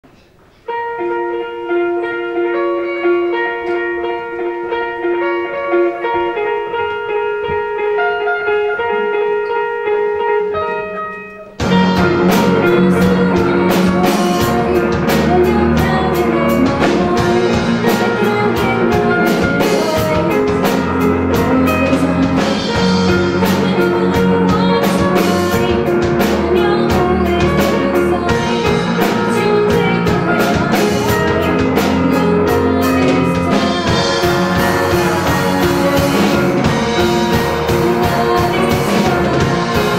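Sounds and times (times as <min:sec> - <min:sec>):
rock band playing live: 0:00.7 - 0:39.9
guitars: 0:00.8 - 0:39.9
person singing: 0:10.4 - 0:39.9
drum kit: 0:10.6 - 0:39.9.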